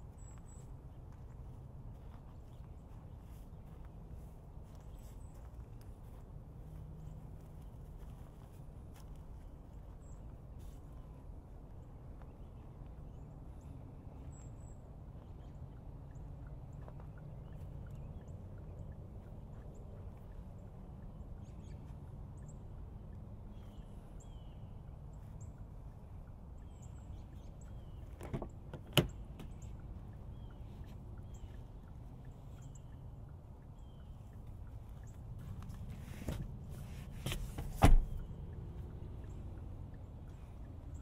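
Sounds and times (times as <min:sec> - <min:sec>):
low outdoor rumble: 0:00.0 - 0:41.0
car door unlatching and opening: 0:37.3 - 0:38.2.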